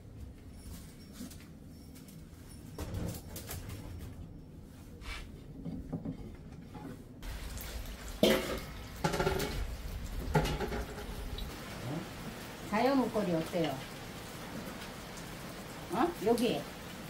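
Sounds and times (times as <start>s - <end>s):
rain dripping off a roof: 7.2s - 17.0s.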